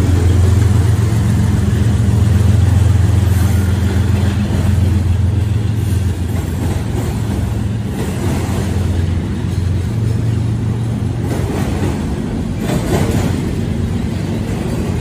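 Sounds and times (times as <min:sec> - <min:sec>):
diesel locomotive drone: 0:00.0 - 0:15.0
freight cars rumbling on rails: 0:00.0 - 0:15.0.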